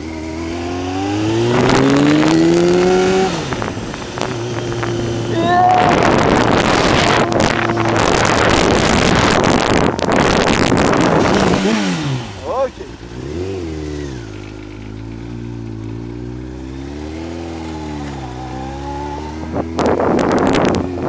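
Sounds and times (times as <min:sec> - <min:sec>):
motorcycle engine accelerating: 0:00.0 - 0:21.0
wind buffeting microphone: 0:01.1 - 0:12.3, 0:18.5 - 0:21.0.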